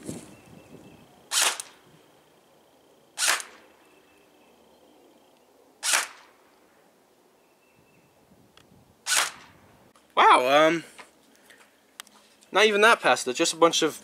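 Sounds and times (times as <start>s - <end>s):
airsoft rifle shots: 1.3s - 1.8s, 3.2s - 3.6s, 5.8s - 6.3s, 9.0s - 9.6s.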